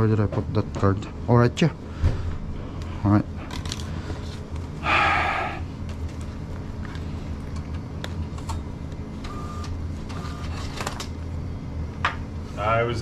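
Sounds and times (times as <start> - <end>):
low mechanical hum: 0.0 - 13.0.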